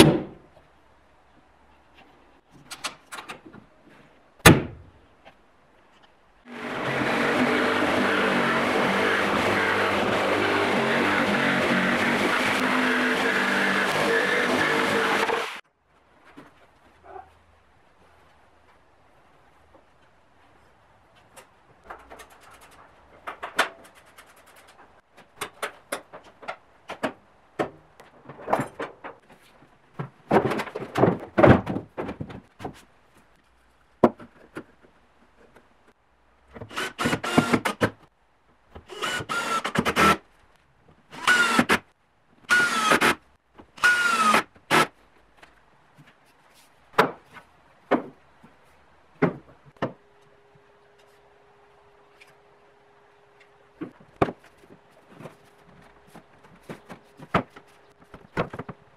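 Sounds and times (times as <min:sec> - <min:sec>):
knocks and clunks of wooden parts: 0:01.9 - 0:06.2, 0:21.1 - 0:33.3, 0:33.9 - 0:38.1, 0:42.5 - 0:50.1, 0:53.4 - 0:58.9.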